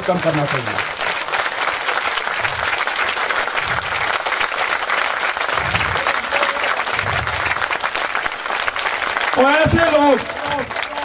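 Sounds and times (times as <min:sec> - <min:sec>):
crowd clapping: 0:00.0 - 0:11.0
dull low thumps: 0:02.4 - 0:04.5, 0:05.3 - 0:08.5.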